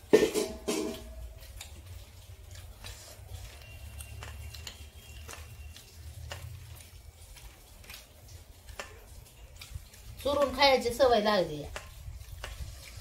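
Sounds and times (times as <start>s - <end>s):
clicks and taps on steel plates: 0.0s - 1.2s, 11.6s - 12.6s.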